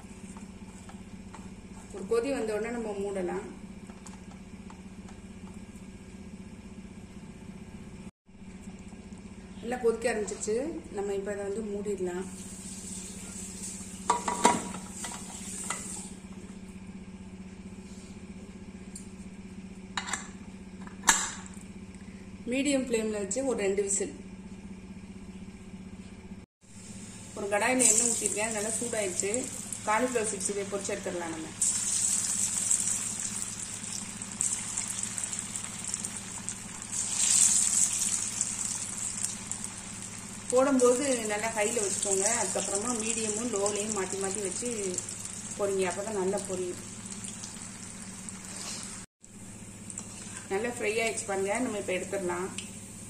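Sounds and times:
steady low hum: 0:00.0 - 0:53.0
cauliflower deep-frying in oil: 0:12.2 - 0:16.1, 0:26.8 - 0:49.0.

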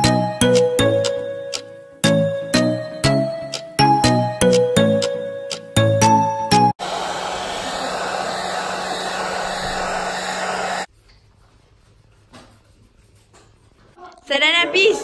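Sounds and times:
hair dryer blowing: 0:06.8 - 0:10.9.

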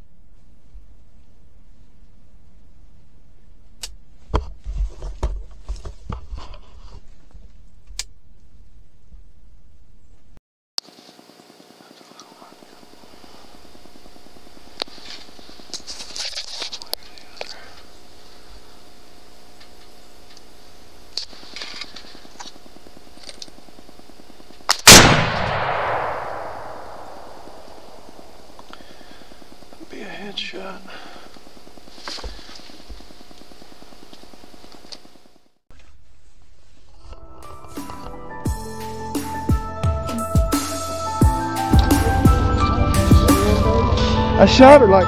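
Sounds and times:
rifle shot echoing: 0:24.8 - 0:28.6.

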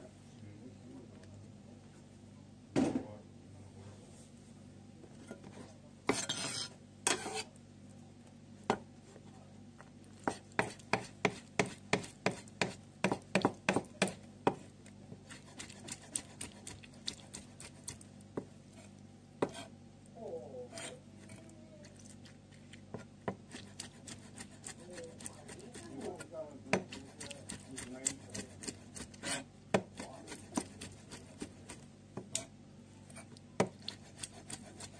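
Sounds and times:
knife chopping on plastic board: 0:10.2 - 0:14.6, 0:19.4 - 0:19.7, 0:22.9 - 0:32.4.

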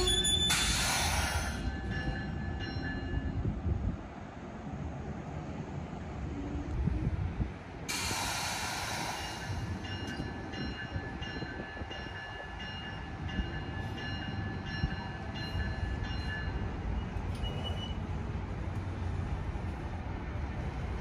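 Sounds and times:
thin high squealing tones: 0:00.0 - 0:01.0
train running with low rumble: 0:00.0 - 0:21.0
burst of hiss: 0:07.9 - 0:09.6.

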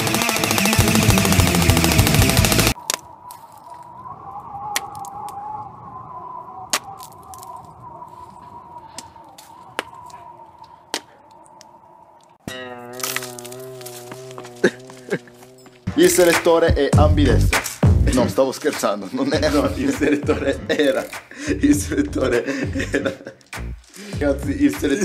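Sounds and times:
airsoft rifle full-auto burst: 0:00.0 - 0:02.8.

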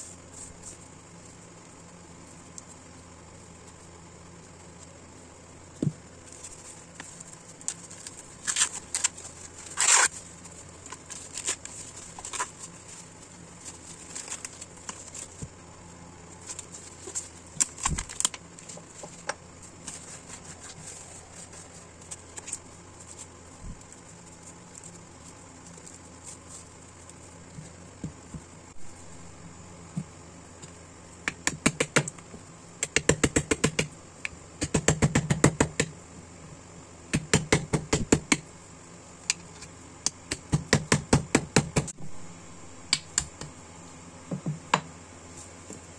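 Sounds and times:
corn husk rustling and crackling: 0:00.0 - 0:31.0.

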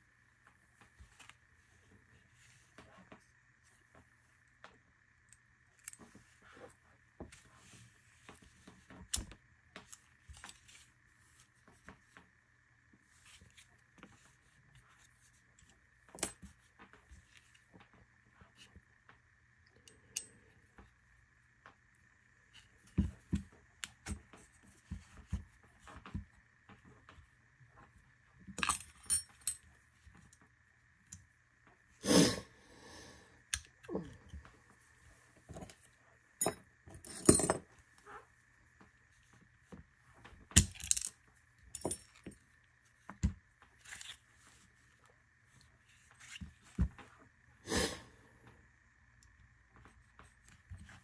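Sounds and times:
metal parts clicking and clinking: 0:28.6 - 0:29.6, 0:36.4 - 0:37.6, 0:40.6 - 0:41.1, 0:41.7 - 0:42.4.

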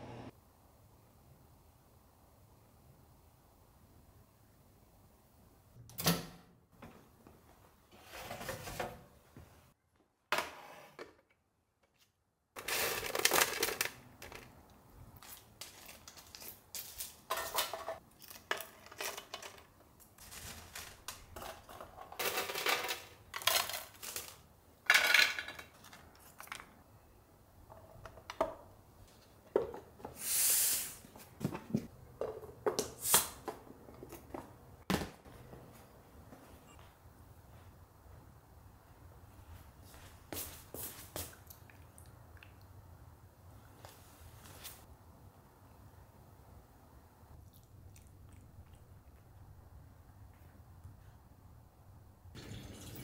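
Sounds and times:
long hissing sound: 0:30.2 - 0:31.0.

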